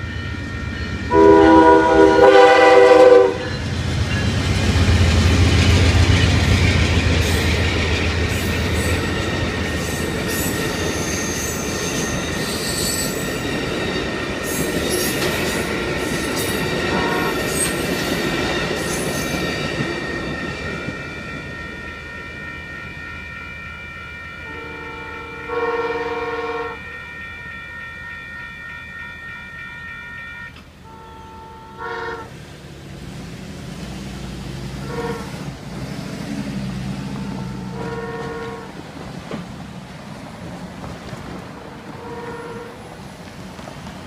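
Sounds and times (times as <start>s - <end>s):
crossing warning bell ringing: 0.0s - 32.2s, 37.0s - 38.8s
locomotive horn: 1.1s - 3.6s, 16.8s - 17.8s, 23.2s - 32.4s, 34.7s - 35.6s, 37.1s - 38.8s, 41.7s - 43.0s.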